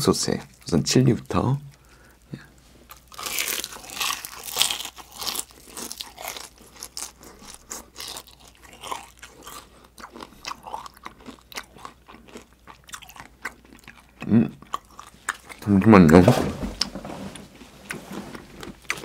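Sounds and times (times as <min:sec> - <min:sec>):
crispy chicken skin crunching: 0:02.8 - 0:15.8.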